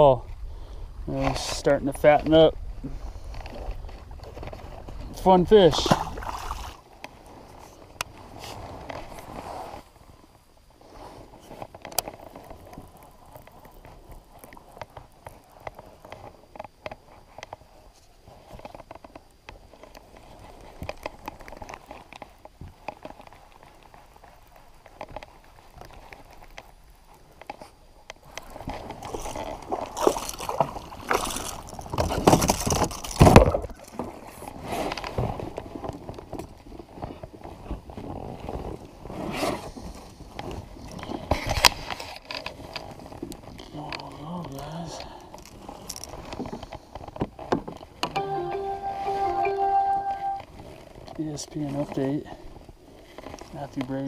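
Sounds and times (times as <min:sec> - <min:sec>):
water sloshing and gurgling: 0:05.7 - 0:07.3, 0:28.4 - 0:34.2.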